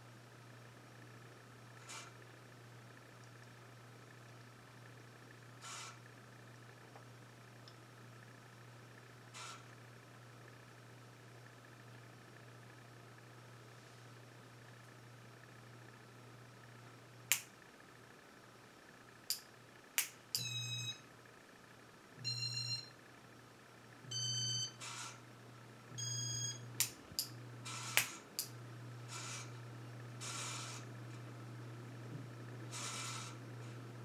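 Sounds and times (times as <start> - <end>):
ceiling fan motor hum: 0.0 - 34.0
short electronic beeps: 20.4 - 21.0, 22.2 - 22.9, 24.1 - 24.8, 26.0 - 26.6.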